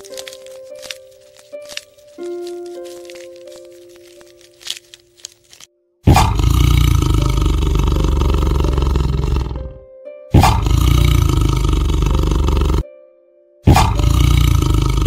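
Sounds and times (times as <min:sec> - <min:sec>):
soft background music: 0:00.0 - 0:15.0
large animal roaring: 0:06.1 - 0:09.8, 0:10.4 - 0:12.8, 0:13.7 - 0:15.0.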